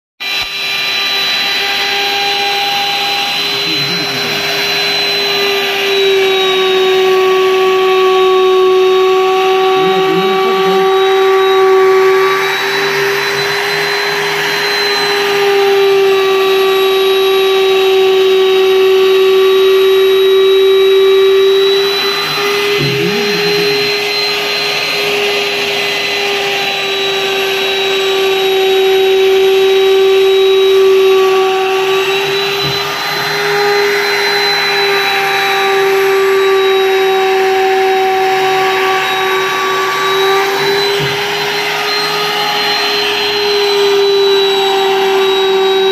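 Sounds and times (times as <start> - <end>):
electric router whining: 0.2 - 45.9
router bit cutting wood: 0.2 - 45.9.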